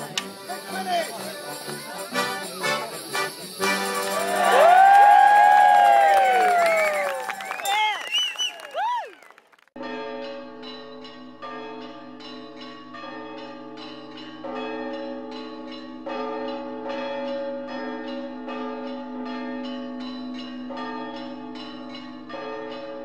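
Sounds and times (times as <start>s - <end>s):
church bells ringing: 0.0s - 4.5s, 9.8s - 23.0s.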